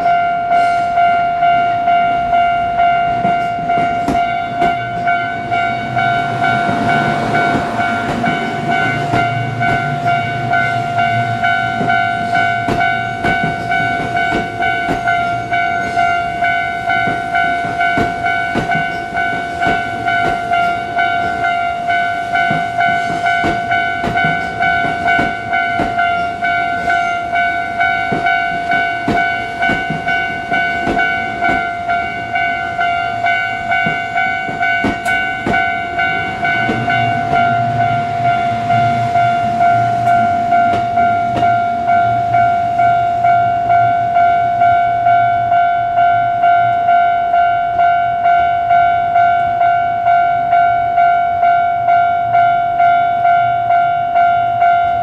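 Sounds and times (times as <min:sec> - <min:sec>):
railroad crossing bell ringing: 0:00.0 - 0:55.0
train wheels clicking over rail joints: 0:02.4 - 0:43.3.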